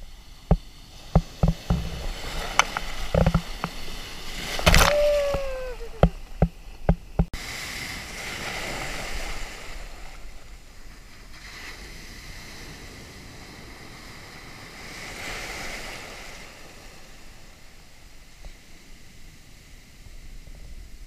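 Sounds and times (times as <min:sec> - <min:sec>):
surf waves breaking: 0:00.0 - 0:21.0
sharp knocks: 0:01.2 - 0:02.0.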